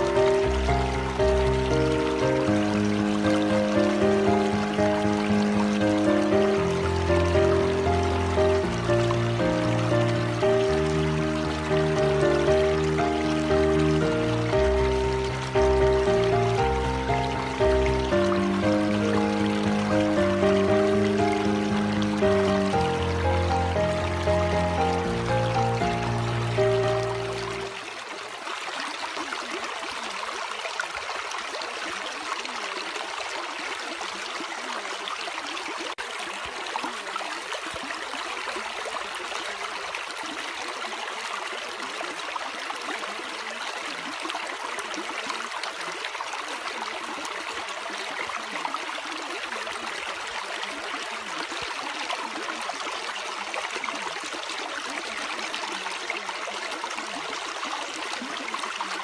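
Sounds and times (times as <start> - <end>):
running water rushing: 0.0 - 59.0.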